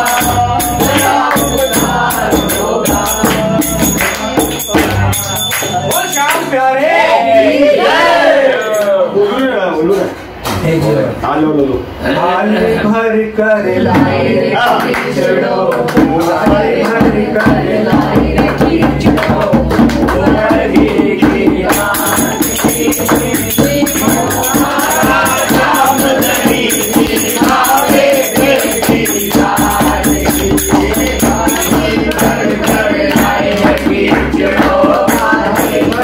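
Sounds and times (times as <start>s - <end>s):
hand drum: 0.0s - 6.1s, 13.8s - 15.1s, 15.8s - 36.0s
hand clapping: 0.0s - 6.5s, 14.6s - 21.0s, 21.7s - 36.0s
jingling percussion: 0.0s - 6.6s, 16.2s - 36.0s
group singing in chorus: 0.0s - 8.8s, 13.6s - 36.0s.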